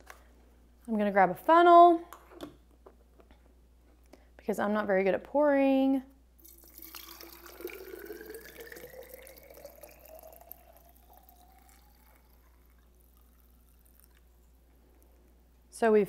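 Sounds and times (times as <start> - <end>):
liquid trickling into a bottle: 6.4 - 14.8.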